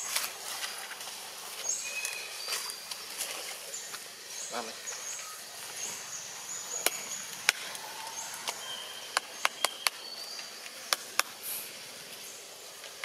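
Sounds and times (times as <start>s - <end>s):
faint outdoor background: 0.0s - 13.0s
thin high whistled tones: 7.7s - 10.4s.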